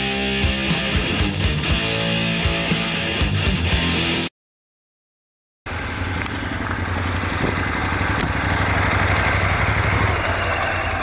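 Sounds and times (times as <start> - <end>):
motorcycle engine idling: 5.7 - 11.0.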